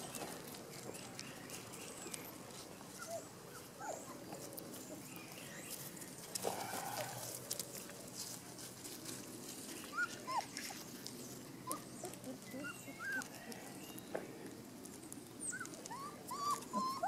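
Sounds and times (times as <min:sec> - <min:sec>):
puppy whining: 0:01.9 - 0:05.1, 0:09.8 - 0:14.0, 0:15.4 - 0:17.0.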